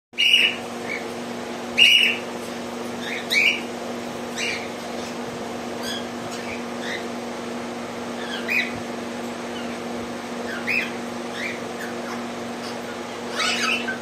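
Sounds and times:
steady low hum: 0.2s - 14.0s
parrots giving shrill calls: 5.8s - 7.1s, 8.2s - 8.8s, 10.4s - 14.0s.

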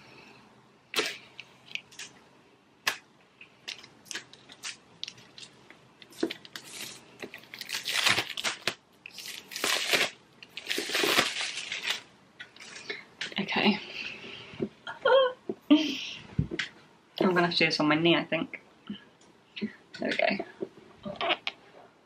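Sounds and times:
plastic film snapping: 3.6s - 12.1s
plastic shrink-wrap crinkling: 3.6s - 12.9s.

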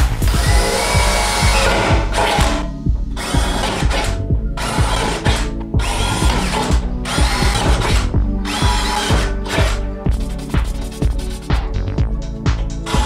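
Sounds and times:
background music with steady beat: 0.0s - 13.0s
cordless drill boring through metal: 0.3s - 9.8s.

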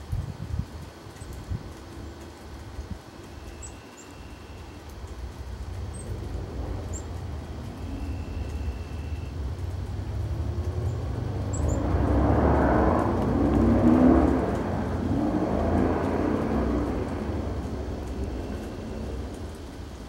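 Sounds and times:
passing vehicle rumble: 4.8s - 20.0s.

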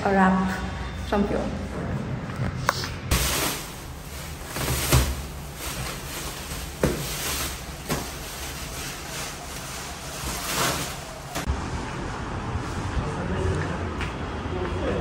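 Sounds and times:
packing rustling and crinkling: 3.1s - 11.5s.

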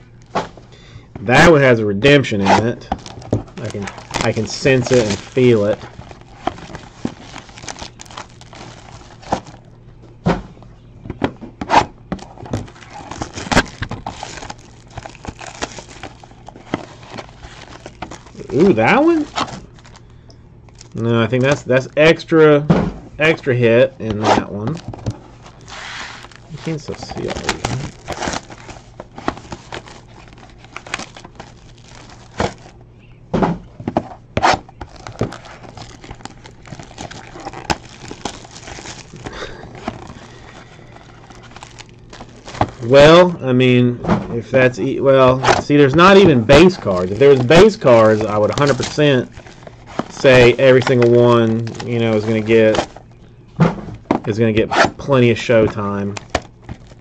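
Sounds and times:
foil wrapper crinkling: 2.8s - 9.7s, 12.2s - 21.6s, 24.6s - 32.8s, 34.8s - 43.3s, 45.6s - 53.1s, 55.4s - 57.0s
cardboard box and cards handled: 2.9s - 9.6s, 24.6s - 32.7s, 34.8s - 40.2s.

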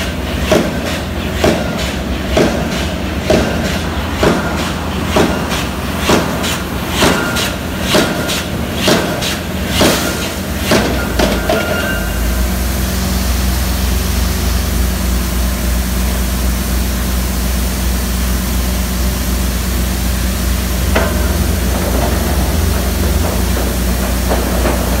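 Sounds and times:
air hammer striking pile: 0.5s - 12.2s, 20.7s - 25.0s
low machinery rumble: 10.4s - 25.0s
sharp knock: 20.8s - 25.0s.

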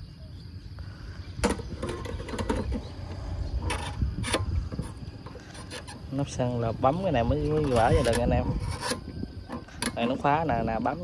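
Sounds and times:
fuel cap and latch clicking: 8.8s - 10.1s.

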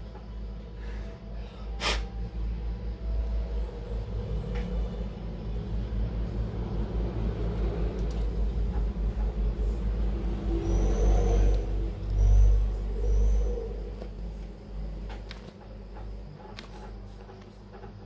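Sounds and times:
faint hum: 0.0s - 18.0s
low steady rumble: 0.0s - 18.0s.

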